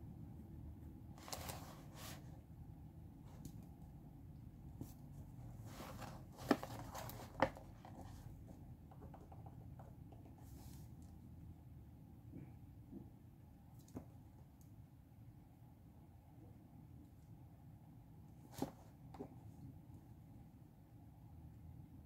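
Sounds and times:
faint room hum: 0:00.0 - 0:22.0
paper pages rustling: 0:01.2 - 0:02.3, 0:05.6 - 0:08.3.

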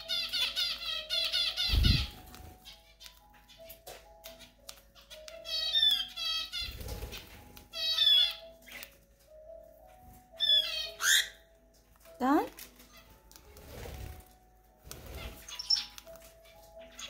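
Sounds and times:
cockatiel squawking: 0:05.0 - 0:06.8, 0:07.7 - 0:08.4, 0:10.4 - 0:11.4.

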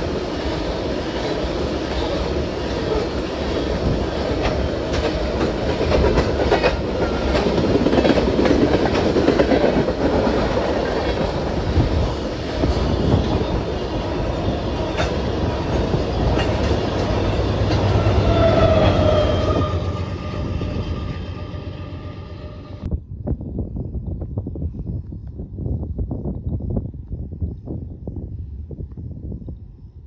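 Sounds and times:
diesel locomotive engine hum: 0:00.0 - 0:22.9
train wheels rumbling and clicking: 0:00.0 - 0:22.9.

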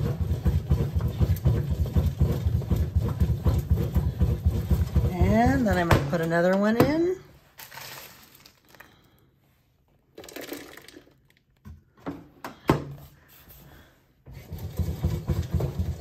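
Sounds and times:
bread machine kneading churn: 0:00.0 - 0:06.9, 0:14.2 - 0:16.0
dried fruit rustling into a pan: 0:07.3 - 0:09.3.

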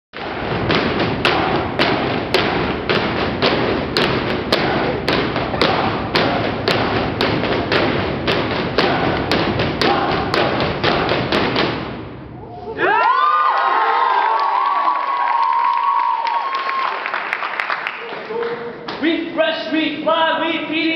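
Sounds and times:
feet stomping on wooden stage: 0:00.2 - 0:12.2.

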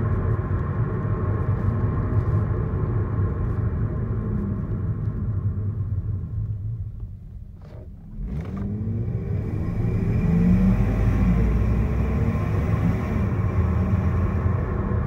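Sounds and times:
car exhaust drone: 0:00.0 - 0:15.0.

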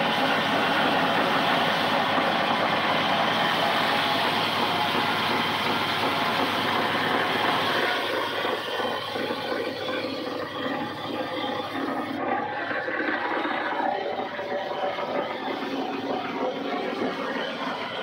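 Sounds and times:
sawmill machinery drone: 0:00.0 - 0:18.0.

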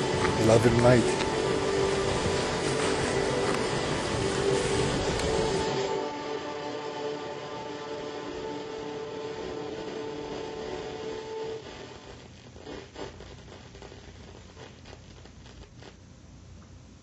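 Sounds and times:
held music chord: 0:00.0 - 0:11.6
low hiss: 0:00.0 - 0:17.0.

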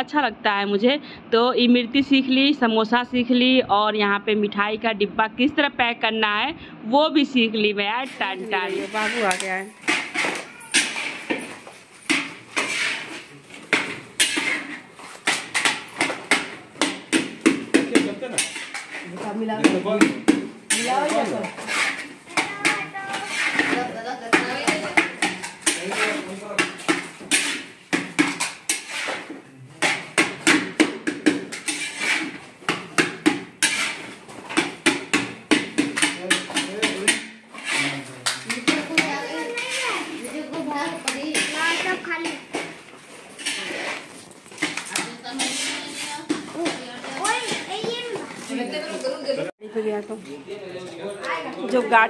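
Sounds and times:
metal spatula scraping a pot: 0:08.0 - 0:19.8, 0:20.7 - 0:48.8.

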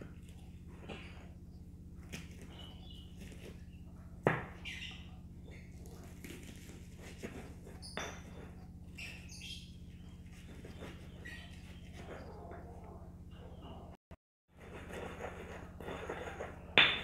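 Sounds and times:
steady low hum: 0:00.0 - 0:14.0
stone pestle knocking in mortar: 0:16.3 - 0:17.0.

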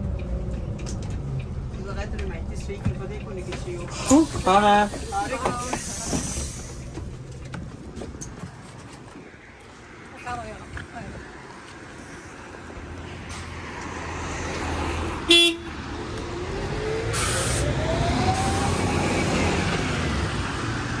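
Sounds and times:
bus engine whine rising: 0:11.8 - 0:21.0.

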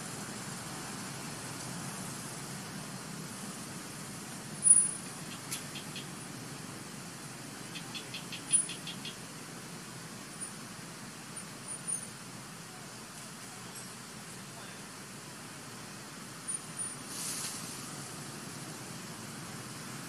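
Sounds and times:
outdoor background hiss: 0:00.0 - 0:20.0
high-pitched chirps: 0:07.7 - 0:09.2.

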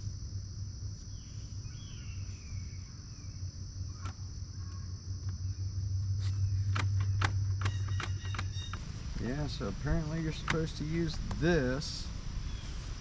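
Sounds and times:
insects droning: 0:00.0 - 0:13.0
low hum: 0:00.0 - 0:13.0
sharp clicks: 0:06.6 - 0:08.8, 0:10.3 - 0:11.5.

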